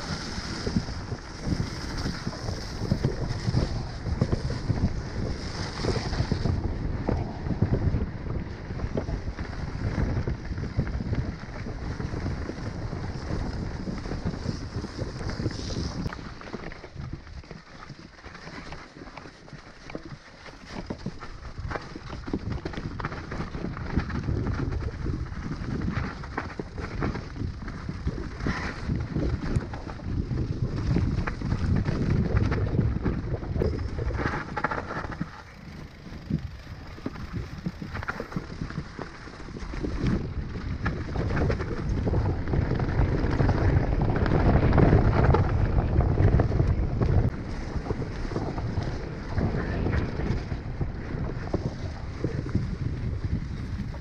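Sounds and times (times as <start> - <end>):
wind buffeting microphone: 0.0 - 18.7, 19.5 - 54.0
bike knocking and rattling: 0.0 - 54.0
tyres crunching over loose stones: 15.5 - 45.6
low rumble: 29.6 - 39.0.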